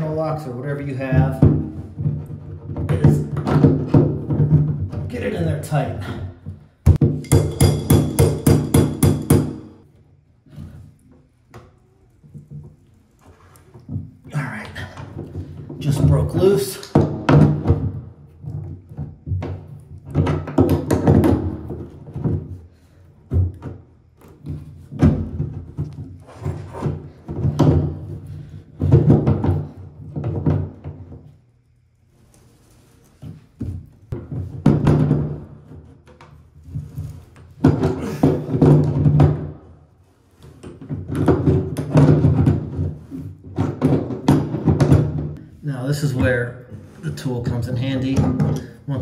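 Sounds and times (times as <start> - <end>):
metal knocks and scraping: 6.9 - 9.8.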